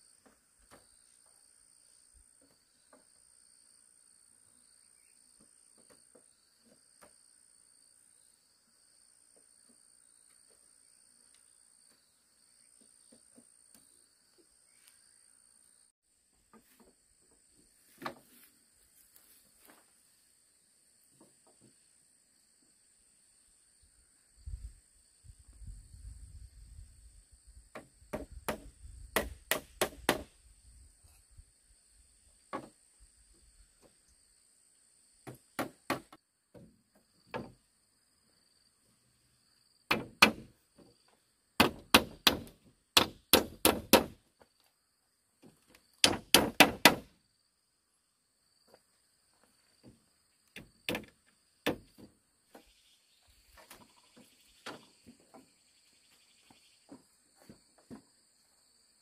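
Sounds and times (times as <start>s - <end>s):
bamboo being struck: 27.8s - 30.3s, 39.9s - 40.5s, 41.6s - 44.2s, 46.0s - 47.1s.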